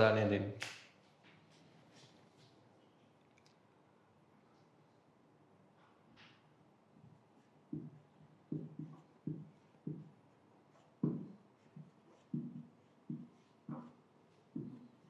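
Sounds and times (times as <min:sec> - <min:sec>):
marker pen knocking on whiteboard: 0:07.7 - 0:15.0.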